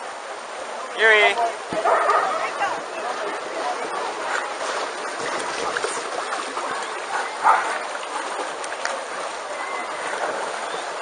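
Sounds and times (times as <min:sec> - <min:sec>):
water splashing and sloshing: 0:00.0 - 0:11.0
dogs and people din: 0:01.4 - 0:08.3.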